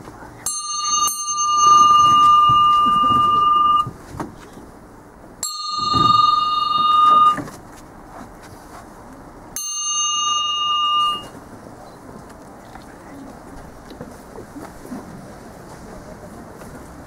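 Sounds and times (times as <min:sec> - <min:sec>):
bell ringing: 0:00.4 - 0:03.9, 0:05.4 - 0:07.5, 0:09.6 - 0:11.4.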